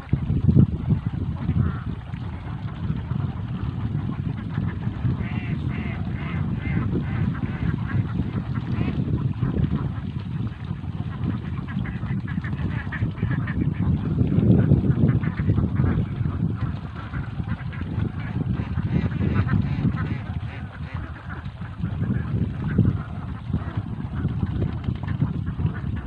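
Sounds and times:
ducks quacking: 0:01.5 - 0:03.3, 0:04.1 - 0:10.1, 0:11.1 - 0:14.2, 0:15.0 - 0:24.3.

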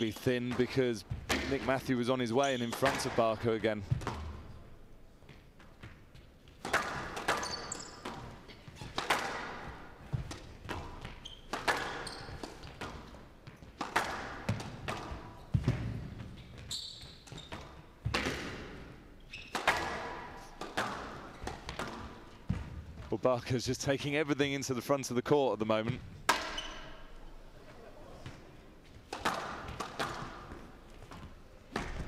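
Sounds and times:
squash ball striking rackets and walls: 0:00.1 - 0:01.8, 0:03.9 - 0:23.1, 0:25.9 - 0:27.2, 0:28.2 - 0:32.0
shoes squeaking on court floor: 0:02.4 - 0:03.3, 0:04.0 - 0:18.3, 0:19.1 - 0:23.2, 0:25.9 - 0:32.0.

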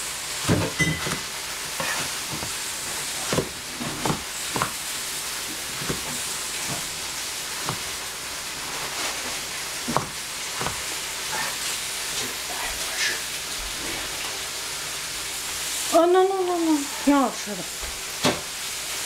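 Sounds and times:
food sizzling in a pan: 0:00.0 - 0:19.0
cleaver chopping on plastic board: 0:00.4 - 0:04.8, 0:05.5 - 0:06.9, 0:07.6 - 0:08.0, 0:09.8 - 0:10.9.

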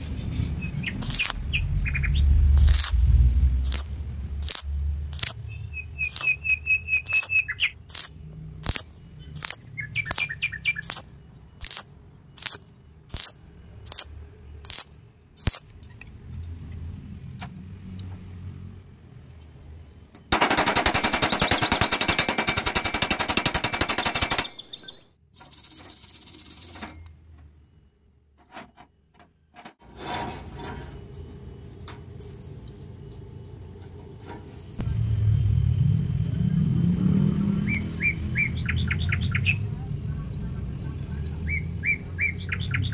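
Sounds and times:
birds chirping: 0:00.1 - 0:02.3, 0:05.4 - 0:07.9, 0:08.8 - 0:12.4, 0:20.7 - 0:25.2, 0:37.4 - 0:39.9, 0:41.0 - 0:42.9
stick welding arc crackle: 0:00.9 - 0:16.1.

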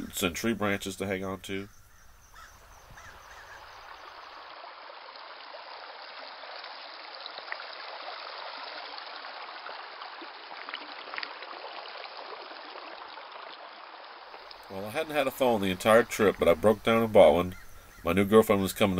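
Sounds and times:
stream trickling over rocks: 0:00.0 - 0:18.9
faint water splashing ticks: 0:01.4 - 0:04.4, 0:14.3 - 0:18.9.

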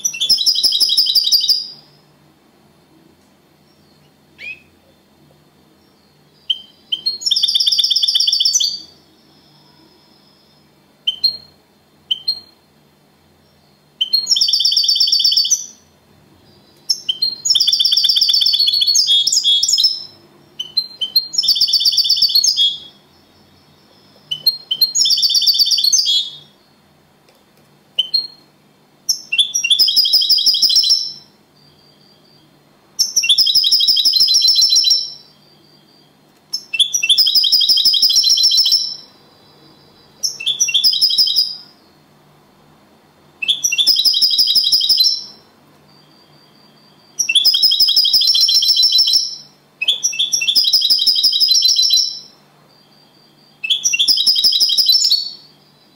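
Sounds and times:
goldfinch singing: 0:03.7 - 0:04.8, 0:11.0 - 0:12.5, 0:13.5 - 0:15.8, 0:16.5 - 0:26.6, 0:33.0 - 0:41.9, 0:43.4 - 0:55.8.

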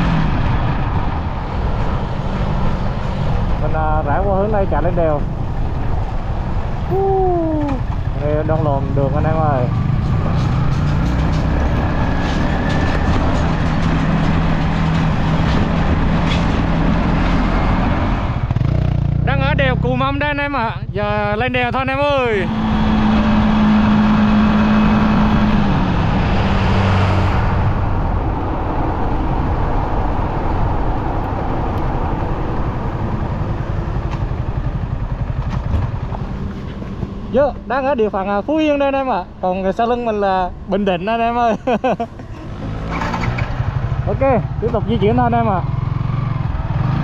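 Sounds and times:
road and wind noise: 0:00.0 - 0:47.0
motorcycle engine running: 0:32.2 - 0:38.3.

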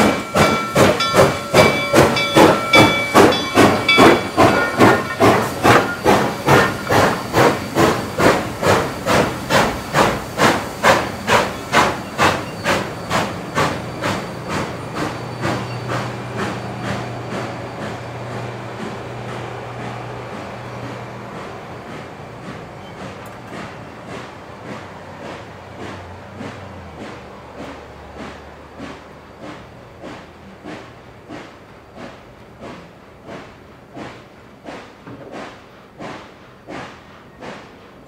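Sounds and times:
steady high tone: 0:00.0 - 0:07.0
steam locomotive exhaust chuffing: 0:00.0 - 0:38.0.

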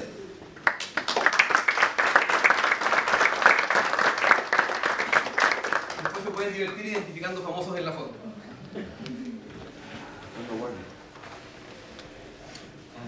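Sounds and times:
audience applauding: 0:00.6 - 0:07.1.

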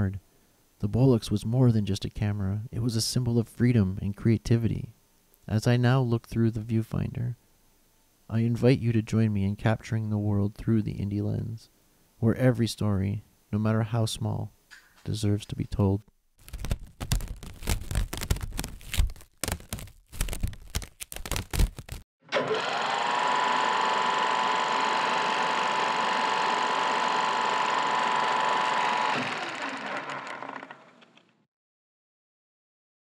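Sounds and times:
film camera whirring: 0:22.3 - 0:31.3.

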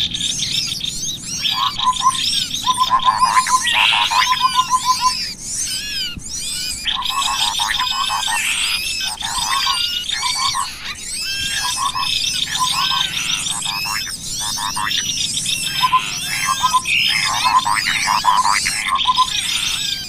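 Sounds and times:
small birds chirping: 0:00.0 - 0:20.0
rising and falling whistles: 0:01.2 - 0:05.4, 0:06.3 - 0:20.0
buzzy trill: 0:07.2 - 0:19.8.

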